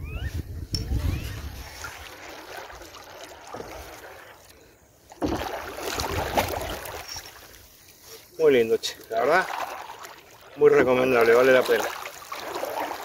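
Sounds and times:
kayak paddle splashing in water: 1.3 - 8.0, 9.0 - 13.0.

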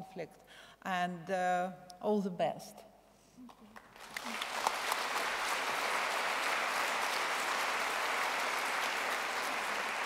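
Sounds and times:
audience applauding: 3.8 - 10.0.

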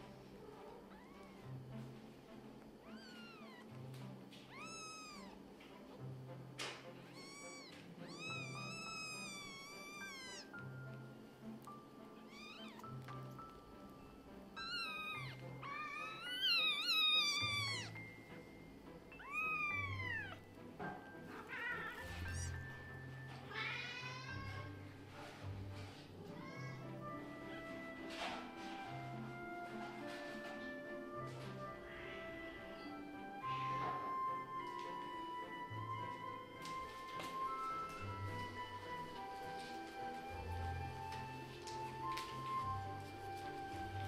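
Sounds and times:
soft background music: 0.0 - 44.0
kittens mewing: 0.5 - 1.5, 2.8 - 3.7, 4.4 - 5.5, 7.0 - 10.6, 12.2 - 13.1, 14.6 - 18.0, 19.1 - 20.5, 21.2 - 22.7, 31.4 - 34.3.

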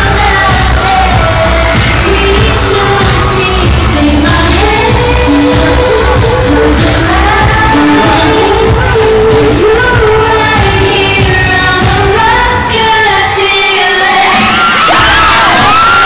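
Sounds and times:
audience screaming: 0.0 - 8.9, 13.9 - 16.0
pop song sung live over backing track: 0.0 - 16.0.

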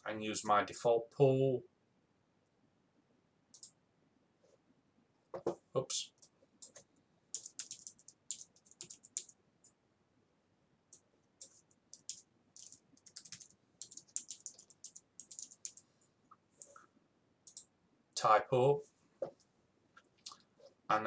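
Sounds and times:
typing on computer keyboard: 3.5 - 3.8, 6.2 - 9.4, 10.9 - 15.8, 17.4 - 17.7.

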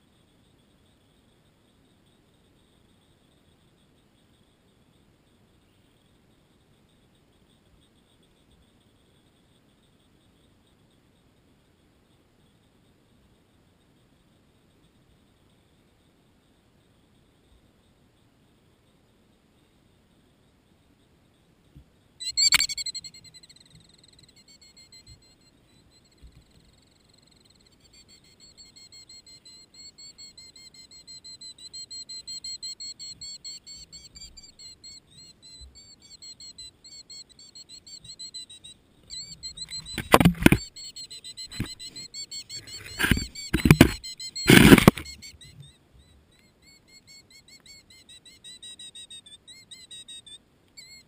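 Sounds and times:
bird alarm calls: 22.2 - 25.2, 27.8 - 51.0
loud rustling: 42.6 - 45.2.

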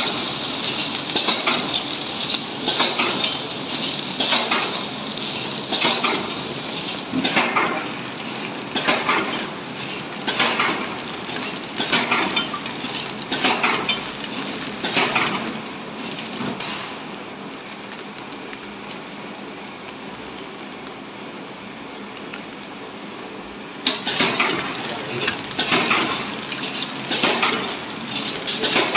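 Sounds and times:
packaging machine rattling: 0.0 - 16.7, 23.9 - 28.9
steady machine noise: 0.0 - 19.8, 23.3 - 28.9.

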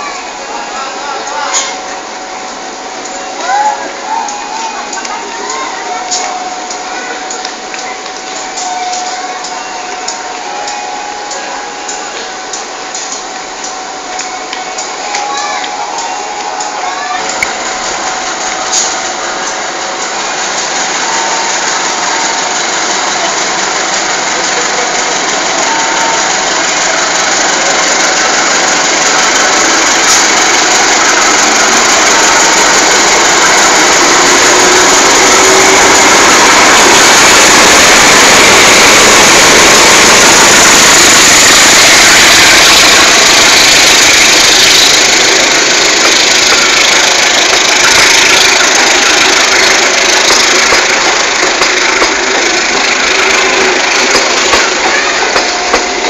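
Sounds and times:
diesel locomotive engine running: 0.0 - 56.0
train wheels rolling on rails: 0.0 - 56.0.

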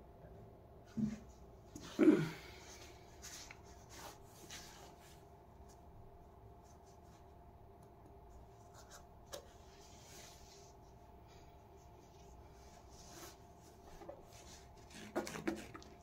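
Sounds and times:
faint steady hum: 0.0 - 16.0
soft scrapes: 2.8 - 5.3, 8.6 - 15.7.

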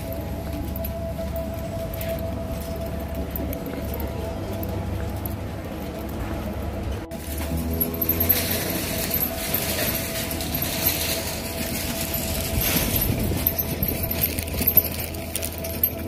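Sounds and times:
cart wheels rolling on asphalt: 0.0 - 16.0
metallic rattling and clicks: 7.0 - 16.0.

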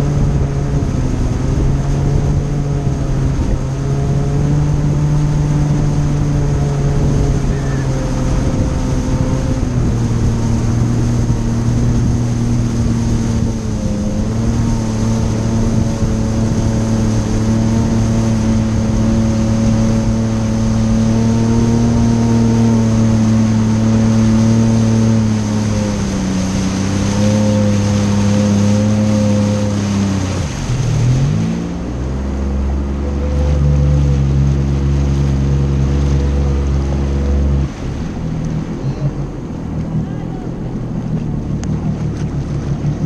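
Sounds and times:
jet ski engine running: 0.0 - 43.0
water spray rushing: 0.0 - 43.0
wind: 0.0 - 43.0.

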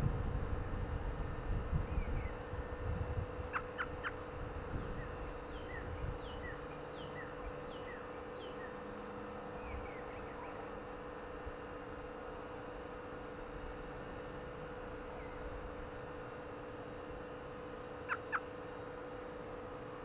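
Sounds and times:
wind rumbling on microphone: 0.0 - 7.9
steady hum: 0.0 - 20.0
robin chirping: 4.8 - 8.8.

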